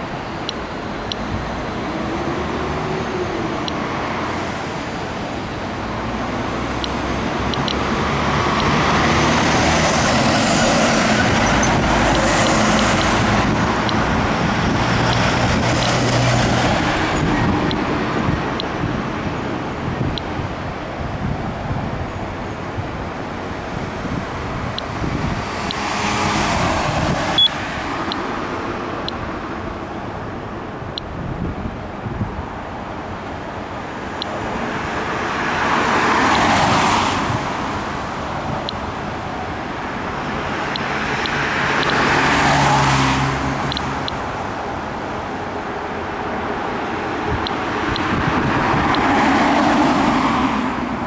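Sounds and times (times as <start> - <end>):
cars passing: 0.0 - 51.0
steady traffic noise: 0.0 - 51.0
geiger counter clicks: 6.8 - 7.8, 40.8 - 42.0.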